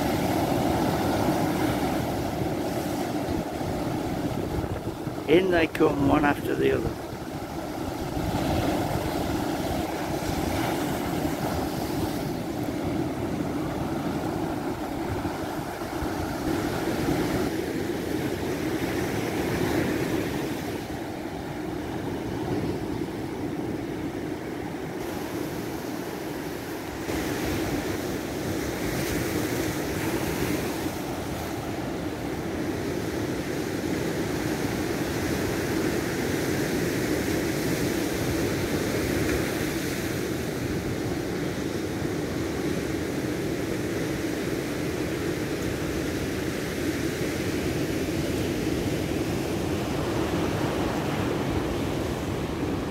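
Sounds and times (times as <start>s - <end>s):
wind on microphone: 0.0s - 5.3s
waves breaking: 0.0s - 52.9s.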